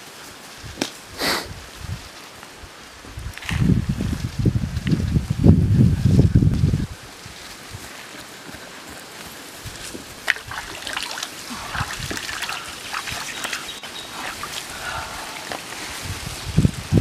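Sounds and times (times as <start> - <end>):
water splashing and trickling: 10.2 - 16.8.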